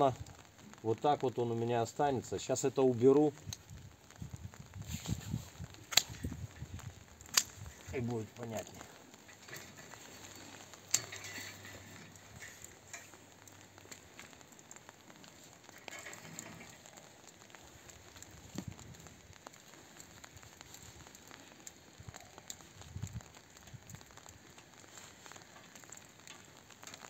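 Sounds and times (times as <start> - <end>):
rustling vine canes and leaves: 0.0 - 27.0
secateurs and twigs clicking: 5.8 - 8.1, 9.1 - 27.0.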